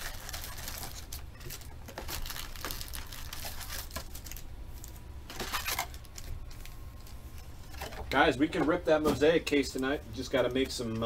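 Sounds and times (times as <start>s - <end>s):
cardboard box rustles and crinkles: 0.0s - 4.4s.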